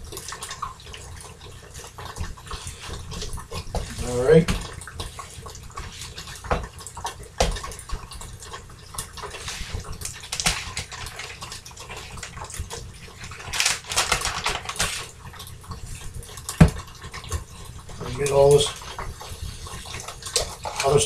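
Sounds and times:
plastic bag crinkling: 0:13.2 - 0:15.1.

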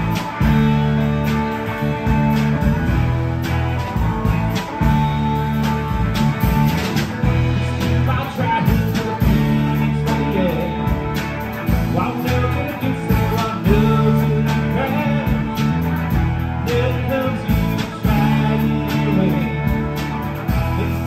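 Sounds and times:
drum kit: 0:00.0 - 0:21.0
electric bass: 0:00.0 - 0:21.0
electric guitars: 0:00.0 - 0:21.0
man singing: 0:07.6 - 0:21.0.

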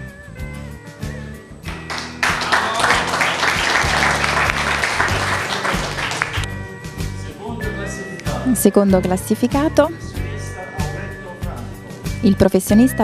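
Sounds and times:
background music: 0:00.0 - 0:13.0
applause: 0:01.7 - 0:06.5.

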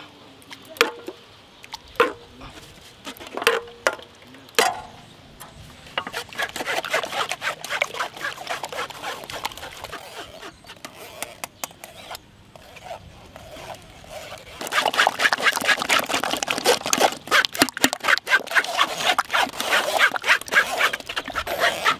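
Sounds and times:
spoons scraping metal strainers: 0:13.7 - 0:21.9.

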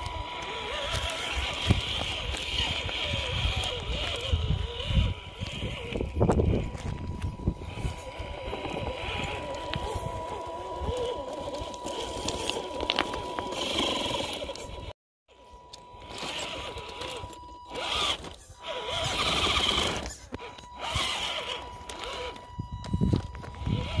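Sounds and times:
electric motor whining: 0:00.0 - 0:24.0
wind on microphone: 0:00.9 - 0:12.5, 0:22.5 - 0:24.0.

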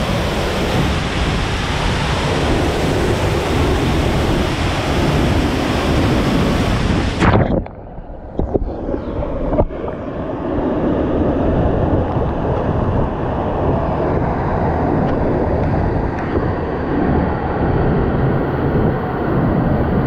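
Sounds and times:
waterfall roaring: 0:00.0 - 0:07.7.

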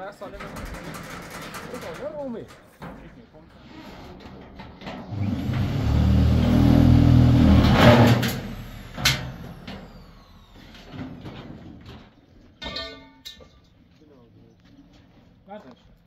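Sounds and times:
short rattle: 0:00.2 - 0:03.5.

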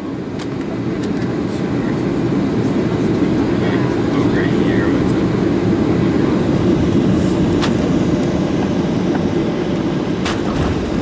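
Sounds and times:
jet engines roaring in cabin: 0:00.0 - 0:11.0.

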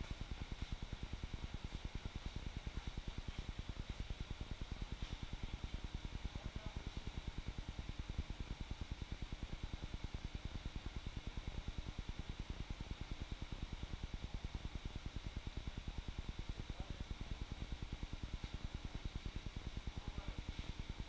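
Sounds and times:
low throbbing machine hum: 0:00.0 - 0:21.0.

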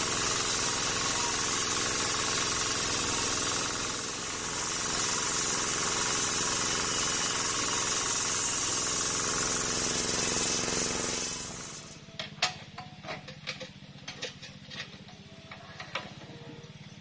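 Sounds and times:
spinning saw blade hissing: 0:00.0 - 0:12.0.

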